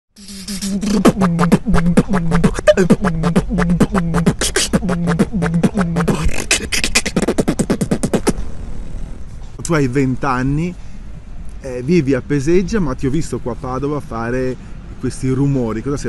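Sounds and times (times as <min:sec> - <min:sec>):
beatboxing: 0:00.2 - 0:09.1
low sung bass line: 0:00.2 - 0:10.2.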